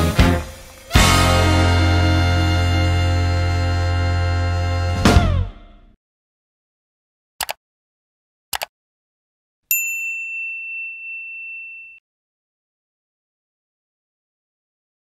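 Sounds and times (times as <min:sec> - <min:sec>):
quick double clicks: 0:07.4 - 0:07.6, 0:08.5 - 0:08.7
high bell ding: 0:09.7 - 0:12.0.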